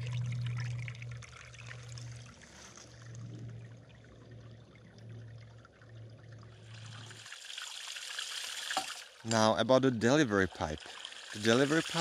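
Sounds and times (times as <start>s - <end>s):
low hum: 0.0s - 7.3s
stream trickling over stones: 0.0s - 12.0s.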